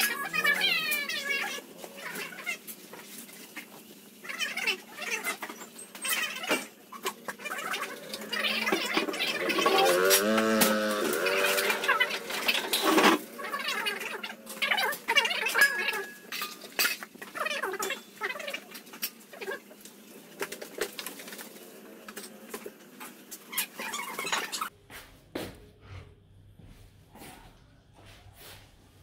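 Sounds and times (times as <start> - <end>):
metal bowls clinking: 0.0 - 1.6, 5.4 - 19.6.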